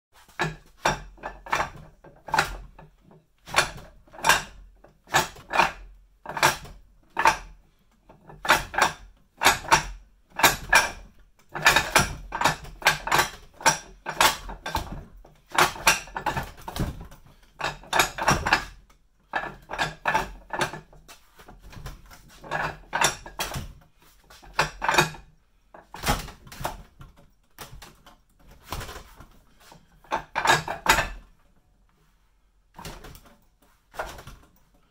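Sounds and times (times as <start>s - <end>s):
wooden knocks on training dummy: 3.5s - 4.5s.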